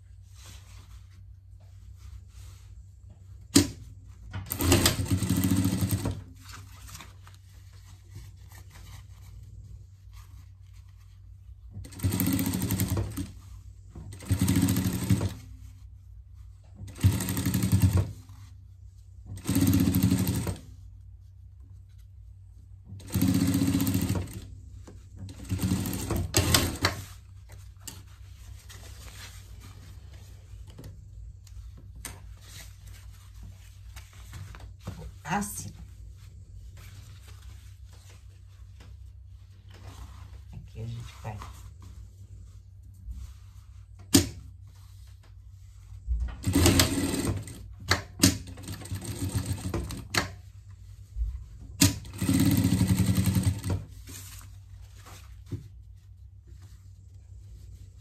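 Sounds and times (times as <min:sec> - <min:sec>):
sewing machine stitching: 0:04.4 - 0:06.2, 0:19.4 - 0:20.6, 0:23.0 - 0:24.5, 0:46.4 - 0:50.3, 0:51.8 - 0:53.8.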